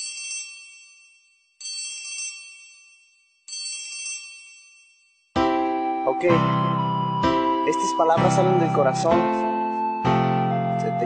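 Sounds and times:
bell-like chime ringing: 0:00.0 - 0:11.0.

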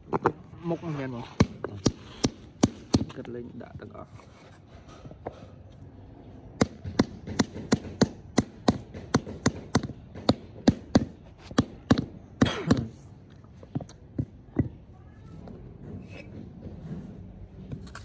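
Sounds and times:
rubber mallet knocking tile: 0:06.6 - 0:12.1.

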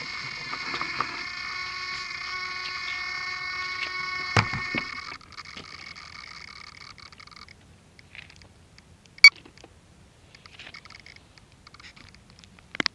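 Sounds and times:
rc helicopter high-pitched whine: 0:00.0 - 0:07.5.

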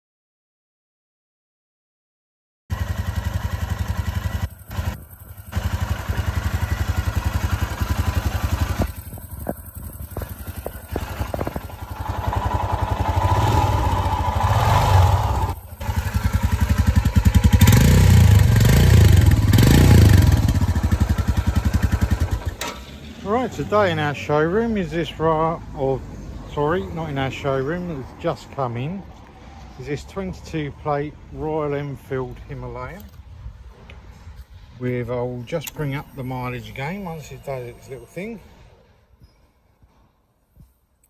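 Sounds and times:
motorcycle engine idling: 0:02.7 - 0:23.7.

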